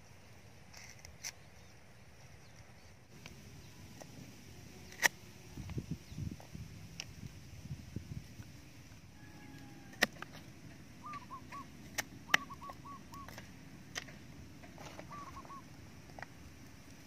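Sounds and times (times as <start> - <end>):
bird calling: 9.0 - 16.3.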